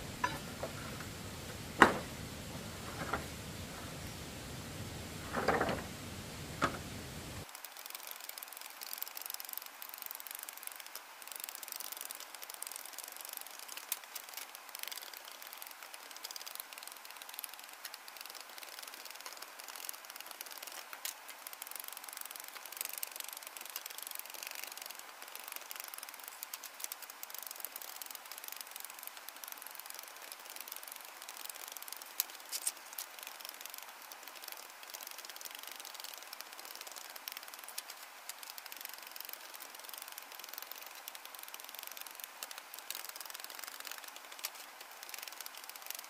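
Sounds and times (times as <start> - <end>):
steady hiss: 0.0 - 46.0
bamboo poles knocking: 0.1 - 4.0, 5.1 - 7.0
bamboo clicks and taps: 0.1 - 46.0.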